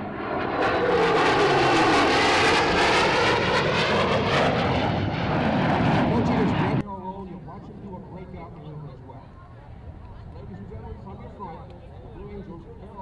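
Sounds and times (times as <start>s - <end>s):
jet roaring past: 0.0s - 8.7s.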